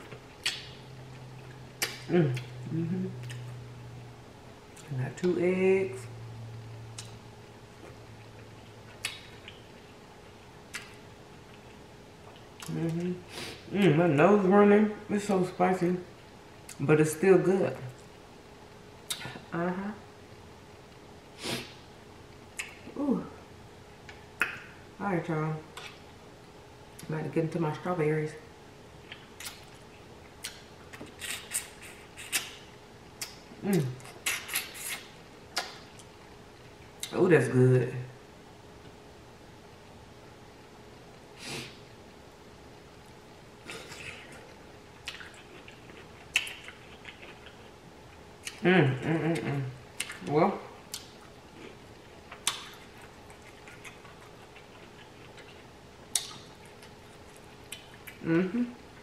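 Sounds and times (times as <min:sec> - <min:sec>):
person chewing: 0:00.0 - 0:03.7, 0:07.8 - 0:13.7, 0:29.0 - 0:32.6, 0:33.2 - 0:37.1, 0:43.6 - 0:48.7, 0:49.3 - 0:59.0
wet mouth smacks while chewing: 0:00.1 - 0:00.8, 0:10.7 - 0:11.0, 0:29.1 - 0:29.8, 0:34.0 - 0:36.1, 0:45.0 - 0:47.7, 0:50.9 - 0:51.2, 0:52.3 - 0:58.2
vocal mm: 0:01.8 - 0:03.5, 0:58.1 - 0:58.8.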